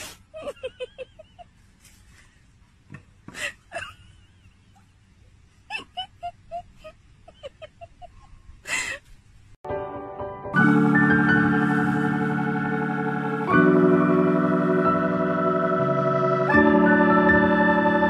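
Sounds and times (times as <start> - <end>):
organ music: 9.7 - 18.0.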